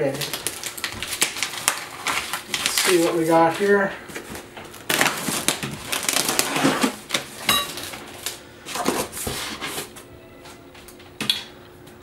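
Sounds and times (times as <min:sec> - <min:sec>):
packing tape ripping: 0:00.0 - 0:03.7, 0:04.3 - 0:10.1
cardboard scraping: 0:05.0 - 0:07.2, 0:08.7 - 0:10.0.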